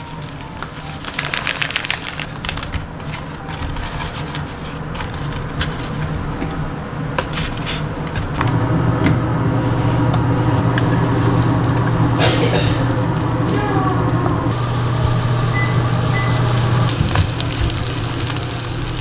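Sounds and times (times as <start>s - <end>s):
plastic bag crinkling: 0.0s - 5.4s, 10.6s - 19.0s
steady low hum: 2.8s - 19.0s.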